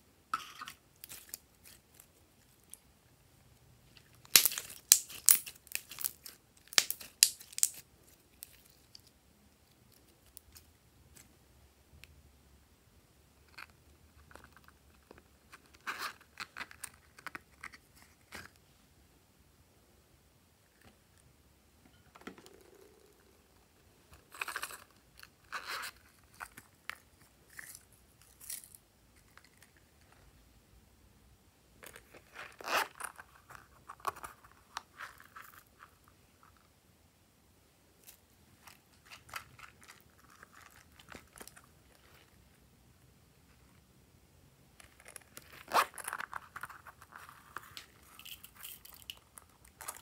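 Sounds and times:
plastic container crinkling: 38.0 - 42.4.

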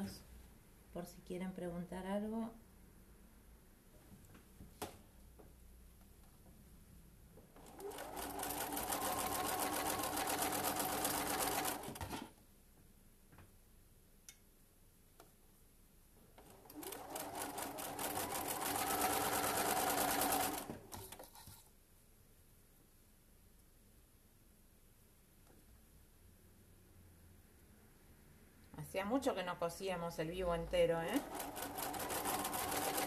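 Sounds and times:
sewing machine stitching: 7.6 - 12.3, 16.4 - 21.6, 31.0 - 33.0.

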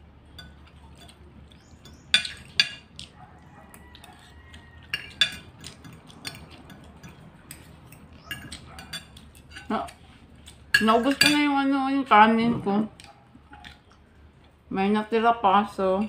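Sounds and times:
cutlery clinking against plate: 0.3 - 11.5.

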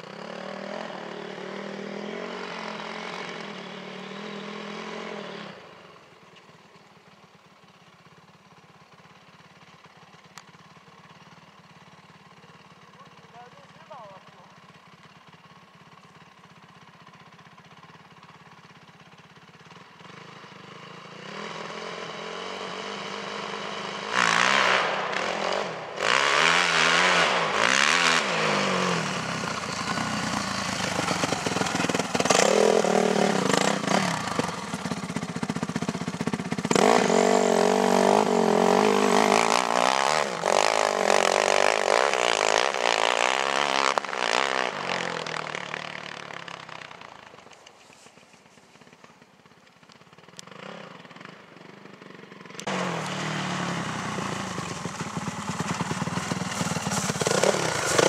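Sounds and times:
motocross bike engine revving: 0.0 - 6.1, 20.0 - 47.5, 50.2 - 58.0.

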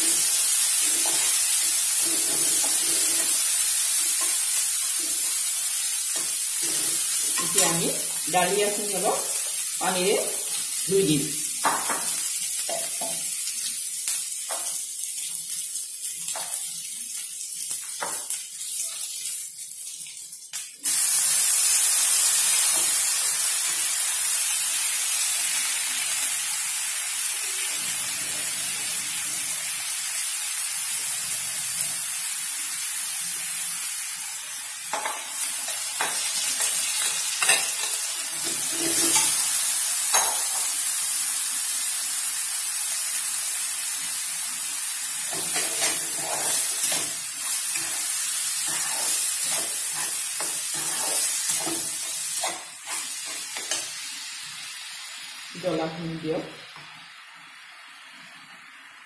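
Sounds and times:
grain sizzling in hot oil: 0.0 - 59.0
spatula scraping a pan: 0.1 - 4.4, 35.0 - 39.4, 45.3 - 53.9.

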